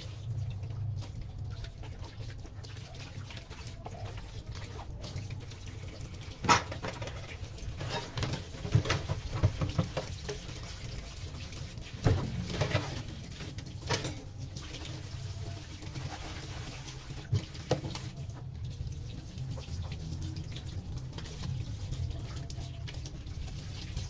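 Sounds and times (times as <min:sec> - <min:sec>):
tap running into metal sink: 0:06.4 - 0:07.2, 0:07.8 - 0:10.6, 0:12.0 - 0:13.1
sponge scrubbing metal strainer: 0:06.4 - 0:18.5.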